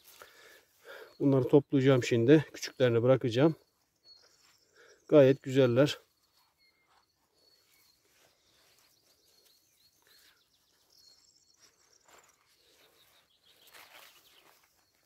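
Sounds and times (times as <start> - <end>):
grass rustling: 3.8 - 10.9, 11.6 - 15.0.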